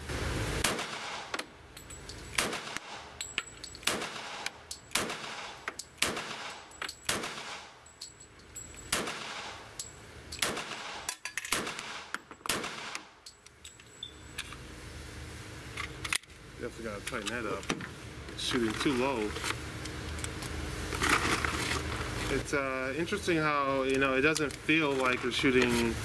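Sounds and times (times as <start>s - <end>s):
fainter distant gunshots: 0.6s - 1.4s, 2.4s - 3.1s, 3.9s - 7.8s, 8.9s - 9.7s.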